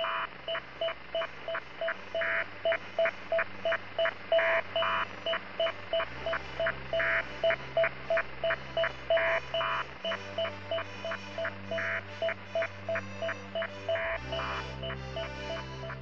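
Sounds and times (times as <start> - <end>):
electronic music: 1.2 - 16.0.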